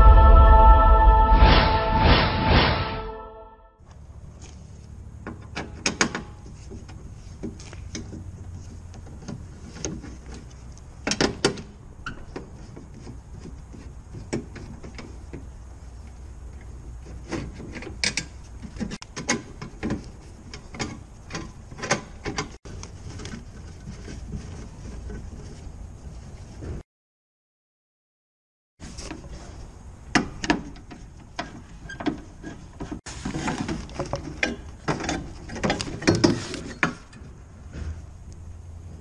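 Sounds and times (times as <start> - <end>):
steady low hum: 0.0 - 3.6.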